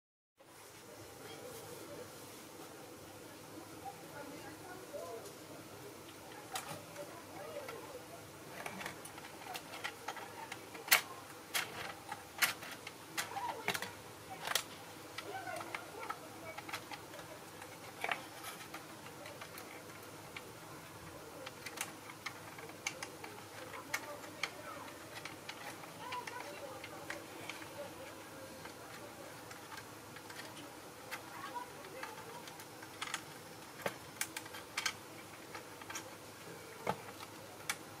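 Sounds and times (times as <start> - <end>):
small plastic parts clicking: 8.5 - 38.0.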